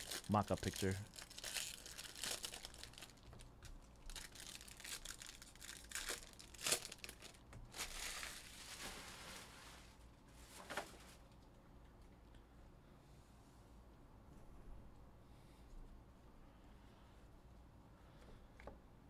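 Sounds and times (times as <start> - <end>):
foil wrappers crinkling and tearing: 0.0 - 10.0.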